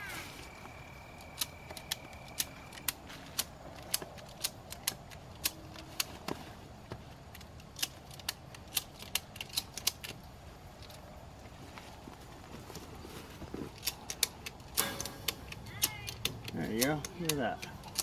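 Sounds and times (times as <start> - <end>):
ratchet strap clicking: 13.7 - 18.0.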